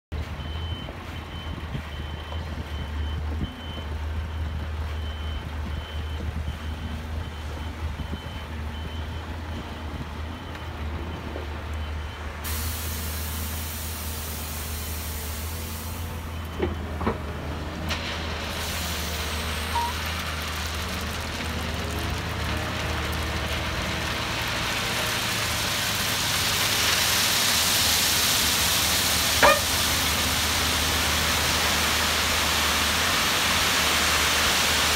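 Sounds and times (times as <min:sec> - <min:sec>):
diesel truck engine running: 0:00.1 - 0:34.9
gravel sliding out: 0:16.8 - 0:34.9
reversing alarm beeping: 0:19.7 - 0:20.0, 0:29.4 - 0:29.7.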